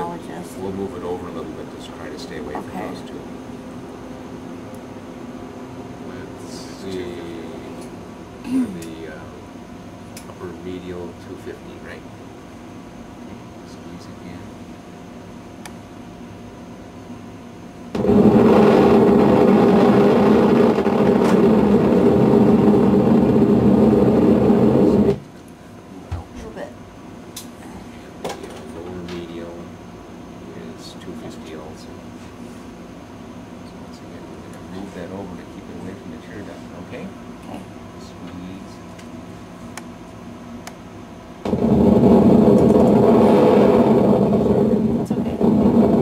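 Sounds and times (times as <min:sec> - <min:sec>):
buzzing static from monitor speaker: 0:00.0 - 0:46.0.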